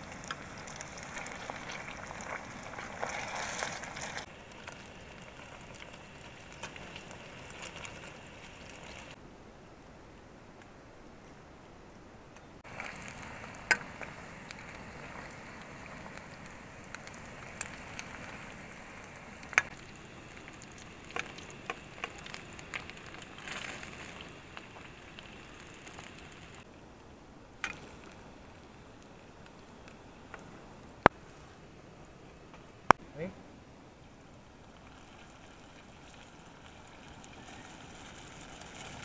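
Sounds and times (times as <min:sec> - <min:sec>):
dumplings sizzling in hot oil: 0:00.0 - 0:09.2, 0:12.6 - 0:26.7.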